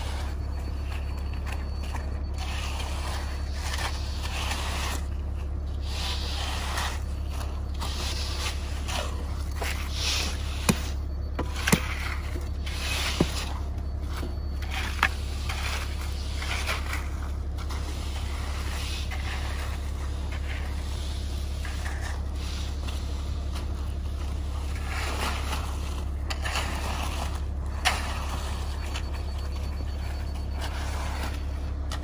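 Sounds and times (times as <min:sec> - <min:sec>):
rake scraping wet concrete: 0:00.0 - 0:32.0
steady low hum: 0:00.0 - 0:32.0.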